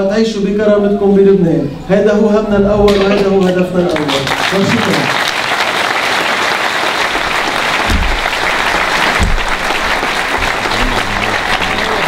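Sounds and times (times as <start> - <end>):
audience applauding: 2.9 - 12.0
microphone handling thumps: 7.8 - 8.4, 9.1 - 9.6.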